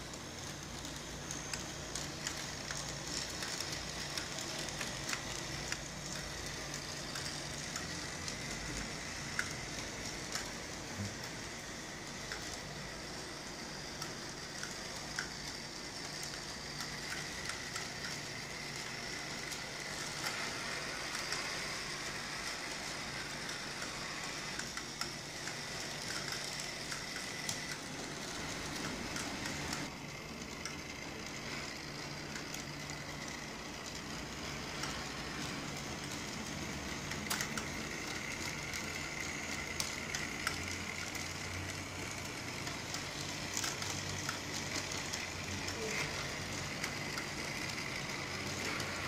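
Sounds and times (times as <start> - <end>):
small motor hum with whine: 0.0 - 49.0
wheels clicking on track: 0.0 - 49.0.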